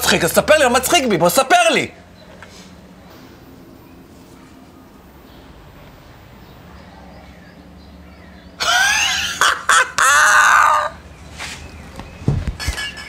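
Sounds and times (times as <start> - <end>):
man laughing heartily: 8.6 - 10.9.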